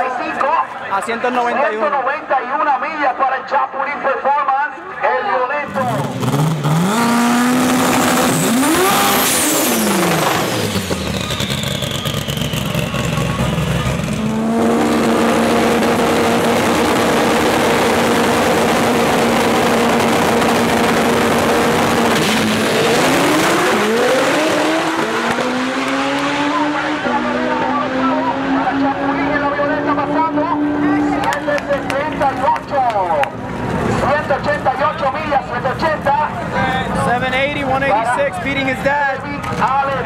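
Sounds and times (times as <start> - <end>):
turbocharged car engine revving: 5.7 - 32.6.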